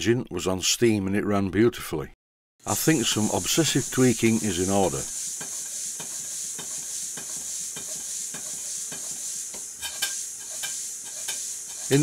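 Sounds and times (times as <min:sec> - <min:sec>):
model steam engine running: 0:10.5 - 0:12.0.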